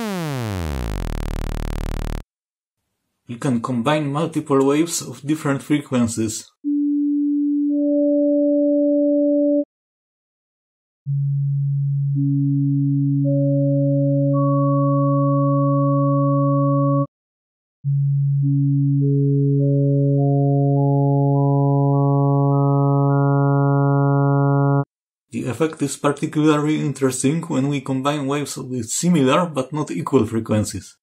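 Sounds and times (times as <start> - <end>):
synthesized sine tones: 0.0 - 2.3, 11.1 - 17.1, 17.9 - 24.9.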